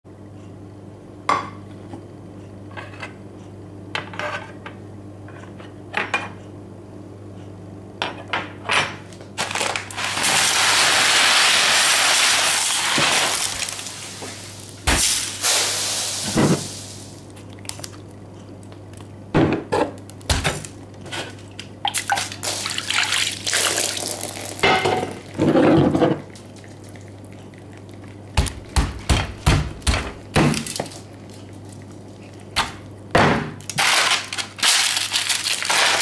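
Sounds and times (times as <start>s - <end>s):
rice grains pouring: 10.0s - 17.2s.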